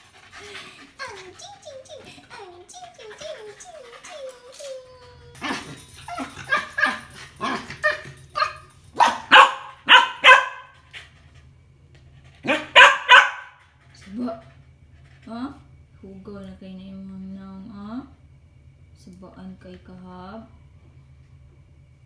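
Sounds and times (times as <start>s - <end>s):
small dog barking: 6.4s - 10.8s, 12.4s - 13.6s.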